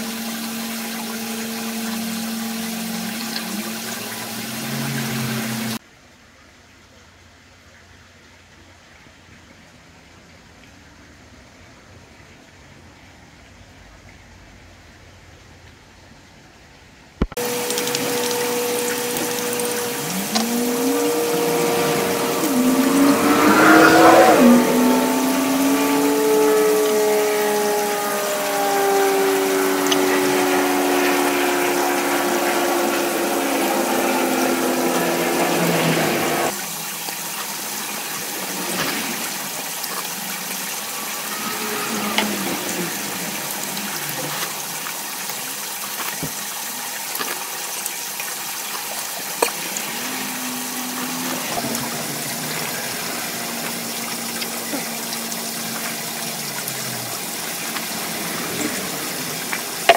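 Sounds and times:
water running: 0.0s - 5.8s, 17.2s - 59.9s
hum falling in pitch: 17.3s - 36.5s, 40.8s - 44.9s, 49.4s - 59.9s.

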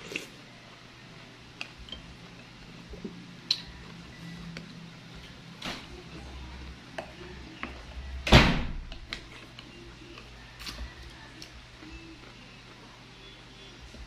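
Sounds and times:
person chewing: 0.0s - 0.4s.

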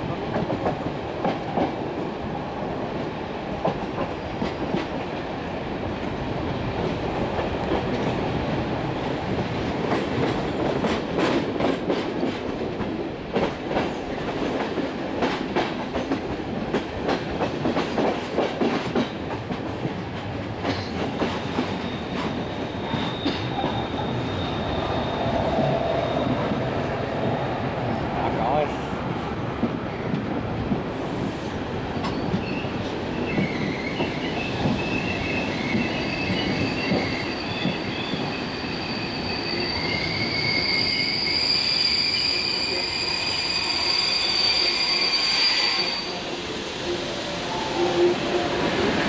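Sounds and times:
train rolling noise: 0.0s - 49.0s
wheels squealing on curve: 21.8s - 26.5s, 32.4s - 46.2s.

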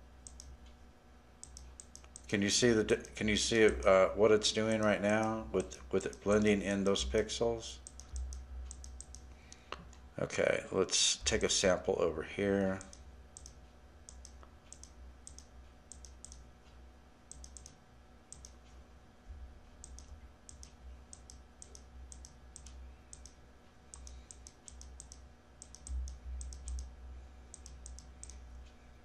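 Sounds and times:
computer mouse button clicking: 17.3s - 18.6s.

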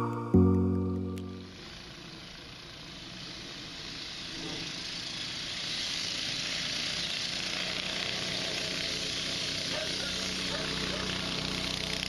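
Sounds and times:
steady hiss: 1.6s - 7.8s
go-kart engine running: 1.6s - 12.0s.

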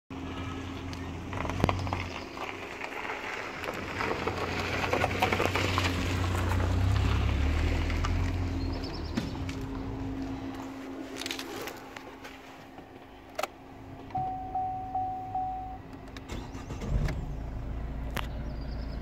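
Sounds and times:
diesel engine idling: 0.1s - 2.0s, 3.0s - 19.0s.

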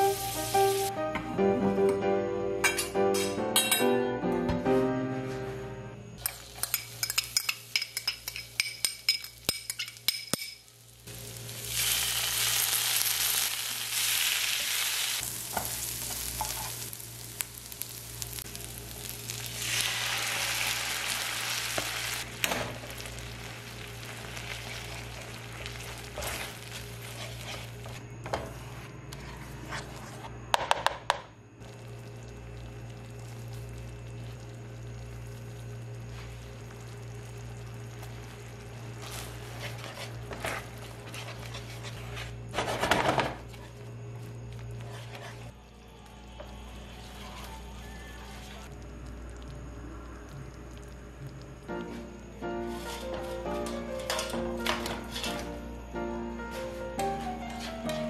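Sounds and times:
spoon clinking against pan: 2.6s - 4.0s, 6.2s - 10.7s
cream sizzling in a pan: 6.2s - 28.0s, 31.6s - 42.2s
garlic frying in hot oil: 6.2s - 28.0s.

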